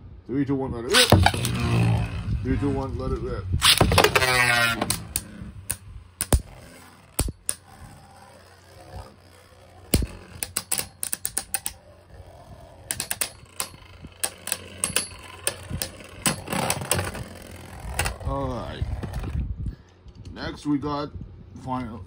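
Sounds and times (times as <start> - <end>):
spinning tops whirring: 0.9 - 3.0, 3.6 - 19.4
plastic tops clacking together: 9.8 - 11.8, 12.9 - 17.3.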